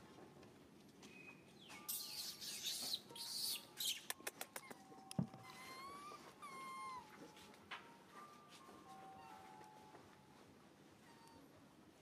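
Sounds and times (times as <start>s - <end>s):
baby monkey squeaky cries: 1.9s - 4.8s, 5.4s - 7.1s.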